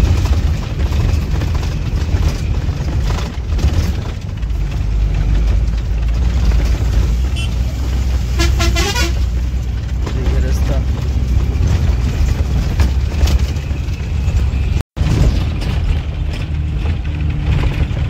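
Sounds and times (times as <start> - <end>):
bus engine rumbling: 0.0 - 18.0
warbling horn honk: 7.3 - 7.7, 8.3 - 9.4.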